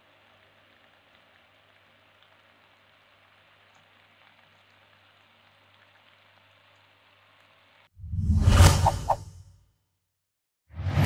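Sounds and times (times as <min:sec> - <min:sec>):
fountain water trickling onto pebbles: 0:00.0 - 0:07.9.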